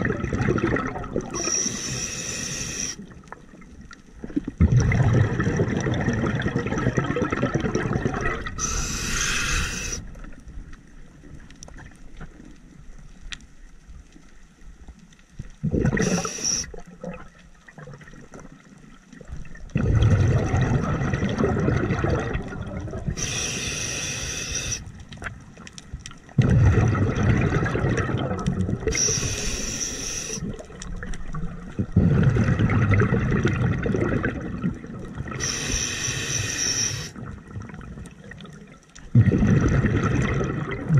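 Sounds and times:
rumbling exhaled bubbles: 0.0 - 10.6, 15.5 - 25.6, 26.2 - 29.5, 30.2 - 35.6, 37.0 - 40.9
hissing regulator inhales: 1.4 - 3.0, 8.6 - 10.0, 16.0 - 16.7, 23.2 - 24.9, 28.9 - 30.5, 35.4 - 37.2.

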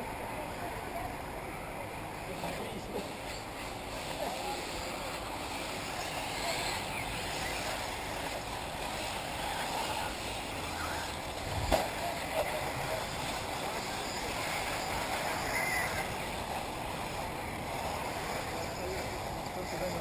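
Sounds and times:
rc buggies running: 0.3 - 20.0.

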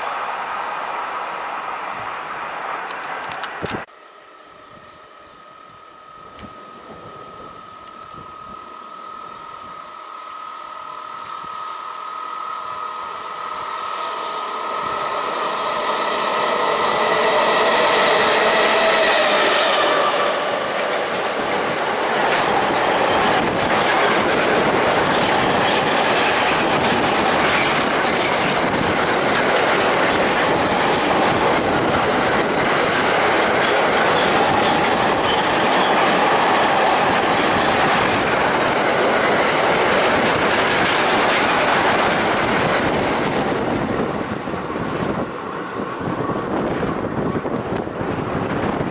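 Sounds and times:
locomotive whine: 0.0 - 48.9
train wagons rumbling: 13.5 - 48.9
wheels clattering on rails: 14.8 - 48.9.

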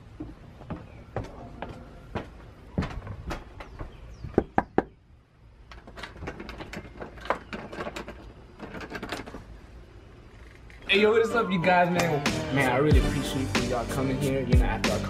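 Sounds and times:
footsteps: 0.0 - 4.0.

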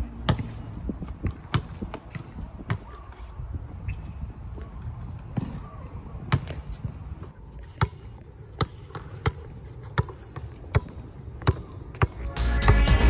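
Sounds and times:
basketball bouncing on hard court: 0.2 - 0.6, 1.3 - 2.9, 6.3 - 6.8, 7.8 - 12.2.

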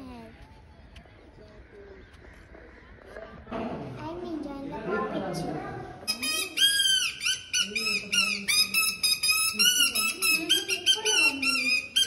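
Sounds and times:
shrill squeaky reed whistle: 6.1 - 12.0.

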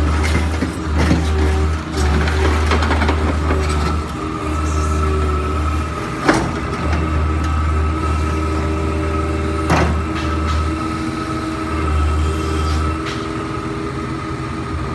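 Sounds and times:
excavator diesel engine drone: 0.0 - 14.9
high hydraulic whine: 3.8 - 14.9.

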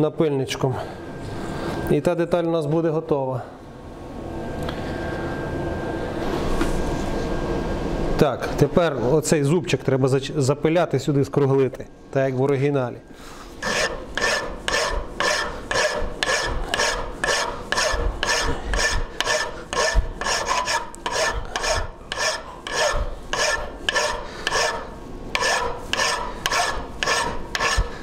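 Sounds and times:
hand file rasping on metal: 13.6 - 28.0.

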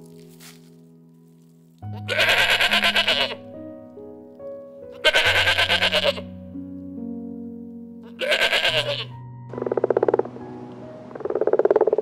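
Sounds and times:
background music sustained notes: 0.0 - 12.0
farm animal bleating: 1.9 - 3.4, 4.9 - 6.3, 8.0 - 9.2.

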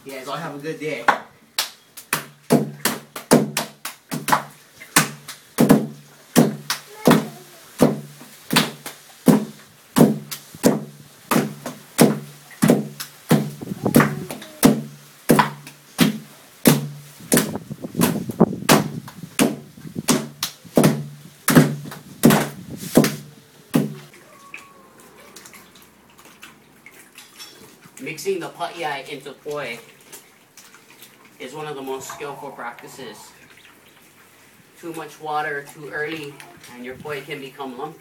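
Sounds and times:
stone pounder thudding on wooden board: 2.2 - 6.7, 7.8 - 13.6, 14.7 - 24.0.

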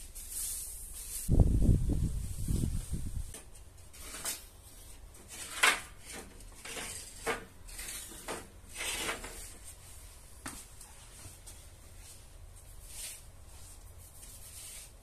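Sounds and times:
wooden boards scraping: 5.2 - 9.6.

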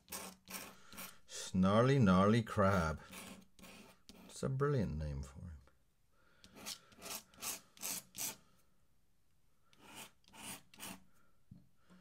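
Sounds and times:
pen scratching on paper: 0.0 - 1.2, 2.6 - 4.4, 6.4 - 8.4, 9.7 - 11.0.

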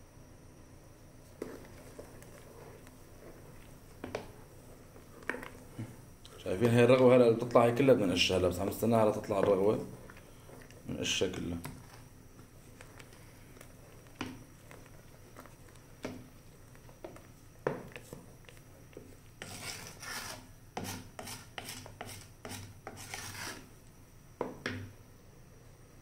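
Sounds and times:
wooden spoon scraping a metal pot: 12.6 - 23.7.

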